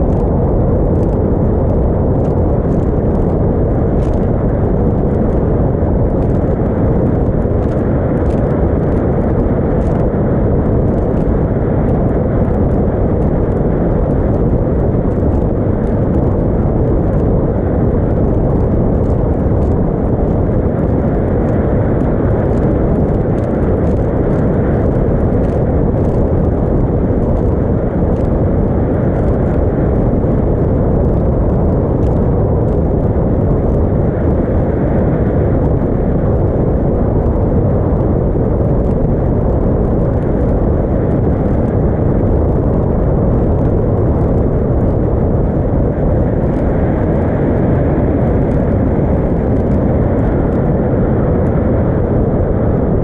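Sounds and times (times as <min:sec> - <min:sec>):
motorboat under way: 0:00.0 - 0:53.0.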